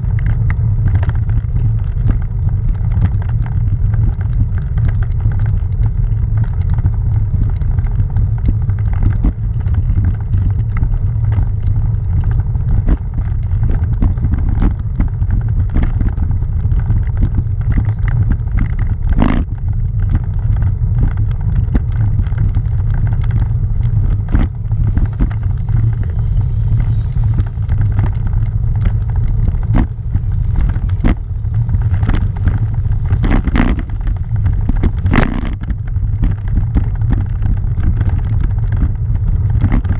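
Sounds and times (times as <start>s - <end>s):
tyres rolling over cobblestones: 0.0s - 39.9s.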